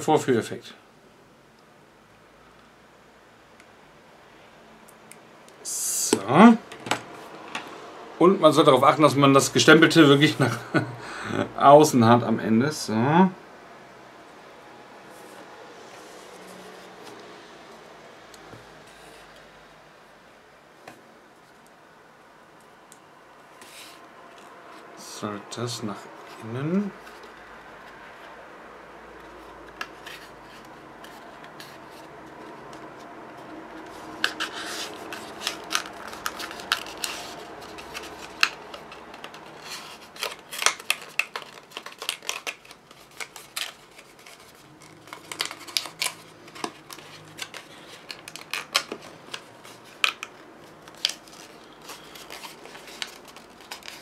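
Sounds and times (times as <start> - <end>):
cardstock crackling and clicking: 33.4 - 54.0.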